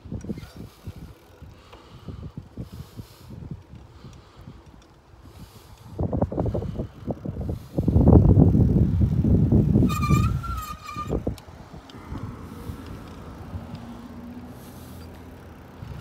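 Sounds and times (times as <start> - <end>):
wind buffeting microphone: 0.0 - 16.0
high squeal: 9.8 - 11.3.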